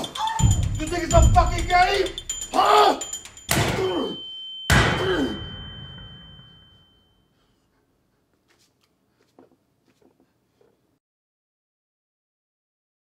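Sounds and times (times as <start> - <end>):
high steady ringing tone: 0.0 - 7.4.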